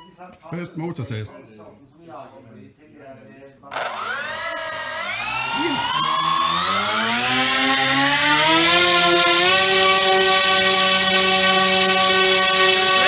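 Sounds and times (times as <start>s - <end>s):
electric motors whining: 3.7s - 13.0s.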